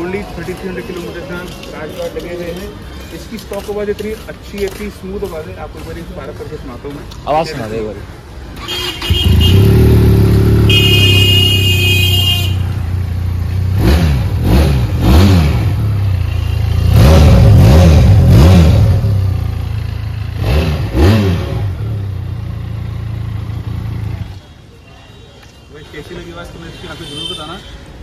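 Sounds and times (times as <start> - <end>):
motorcycle engine revving: 8.6 - 24.4.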